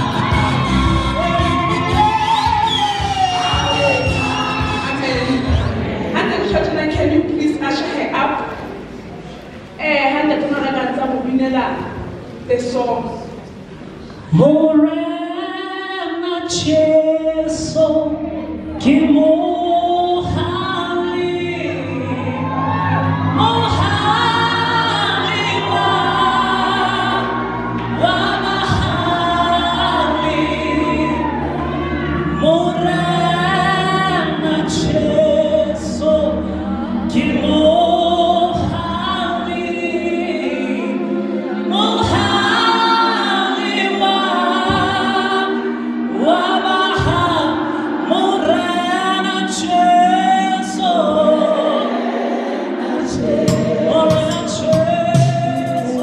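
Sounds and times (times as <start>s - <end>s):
choir singing through pa: 0.0s - 6.7s, 14.4s - 56.0s
lead singer on microphone: 14.3s - 56.0s.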